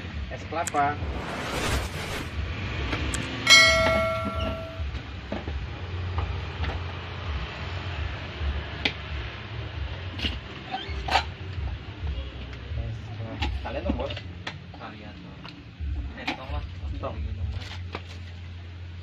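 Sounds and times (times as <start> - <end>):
steady low rumble: 0.7 - 2.7
bright ring: 3.5 - 4.8
sharp clinks: 3.5 - 4.8.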